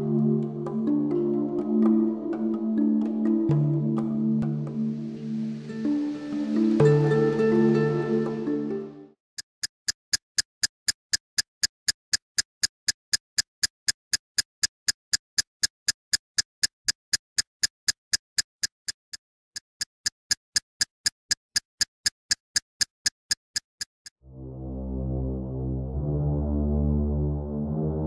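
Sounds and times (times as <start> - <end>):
music sting: 0.0 - 9.1
sharp ticks: 9.4 - 24.2.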